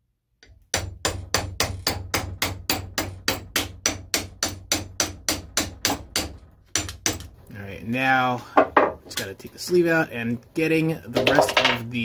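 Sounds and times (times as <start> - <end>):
hammer tapping on metal: 0.4 - 7.3.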